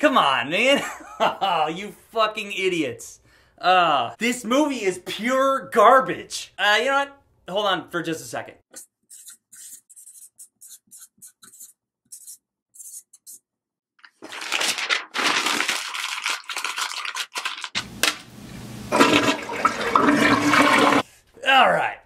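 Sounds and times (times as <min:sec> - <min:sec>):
marker squeaking on paper: 0:08.8 - 0:13.4
paper crumpling: 0:14.0 - 0:17.9
toilet flushing: 0:17.9 - 0:21.1.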